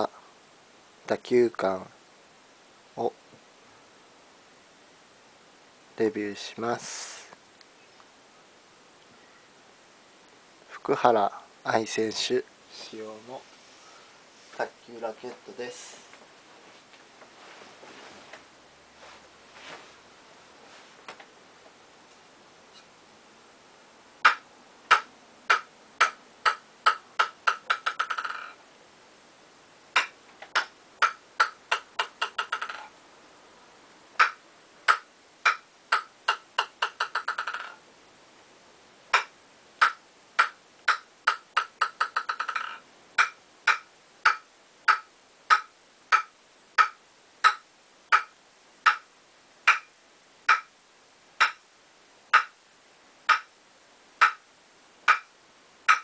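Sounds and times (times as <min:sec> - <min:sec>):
table tennis ball bouncing on wood: 0:50.5 - 0:50.7, 0:55.1 - 0:55.3.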